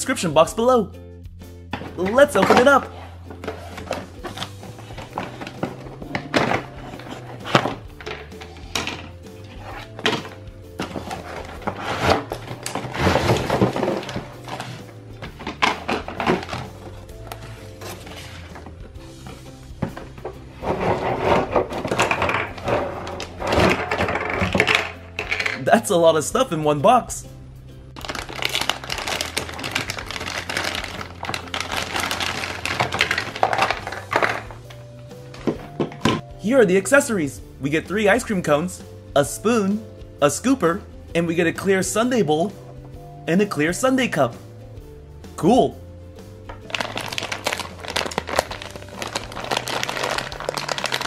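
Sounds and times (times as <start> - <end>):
soft background music: 0.0 - 51.0
plastic bags crinkling: 28.0 - 34.6, 46.6 - 51.0.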